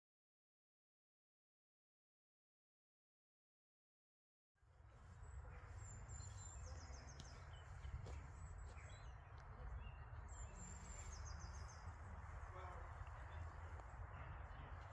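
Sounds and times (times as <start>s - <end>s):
small birds calling: 4.8s - 14.9s
high bird trill: 5.4s - 14.6s.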